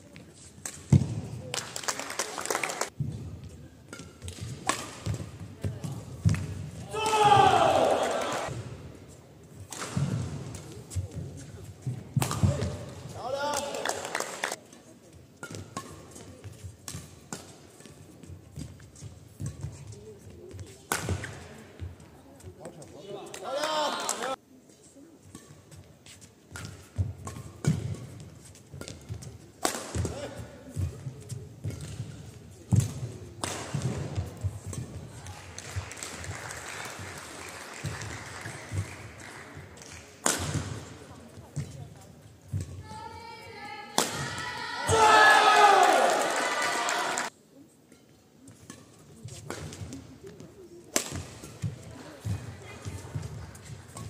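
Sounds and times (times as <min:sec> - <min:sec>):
racket hitting shuttlecock: 0:03.9 - 0:07.9, 0:09.6 - 0:12.9, 0:15.4 - 0:21.9, 0:25.3 - 0:36.3, 0:37.0 - 0:43.0, 0:43.9 - 0:45.1, 0:47.9 - 0:54.0.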